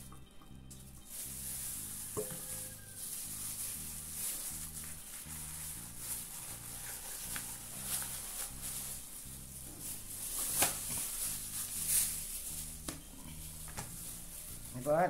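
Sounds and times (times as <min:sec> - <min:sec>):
background music bass line: 0:00.0 - 0:15.0
plastic sheet crinkling: 0:00.8 - 0:15.0.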